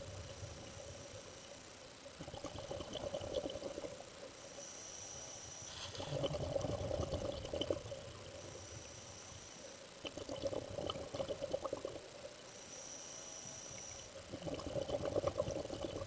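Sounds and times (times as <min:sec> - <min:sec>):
bubbling exhalation underwater: 0:02.2 - 0:04.0, 0:05.9 - 0:08.0, 0:10.0 - 0:12.0, 0:14.3 - 0:16.0
hissing inhalation through regulator: 0:04.5 - 0:12.0.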